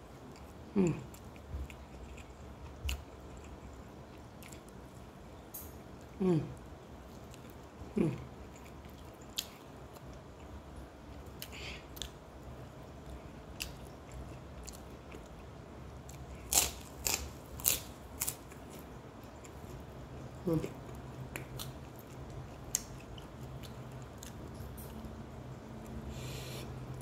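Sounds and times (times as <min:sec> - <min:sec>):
steady low hum: 0:00.0 - 0:27.0
chewing and lip smacks: 0:18.2 - 0:25.0.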